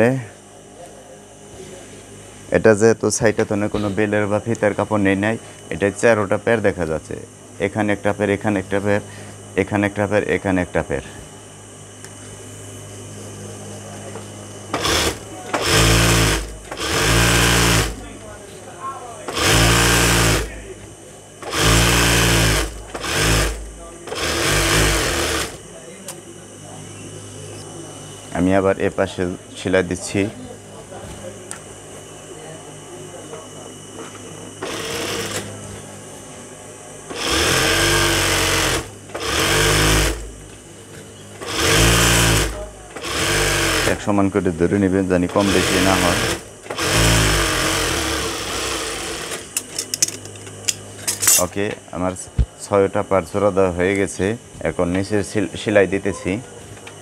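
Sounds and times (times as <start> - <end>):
sewing machine stitching: 14.7 - 18.0, 19.3 - 20.5, 21.4 - 25.6, 37.1 - 40.2, 41.4 - 44.0, 45.4 - 49.4
sewing machine motor hum: 14.7 - 18.3, 19.3 - 20.7, 21.4 - 25.6, 34.6 - 35.6, 37.1 - 40.5, 41.4 - 44.1, 45.2 - 50.1.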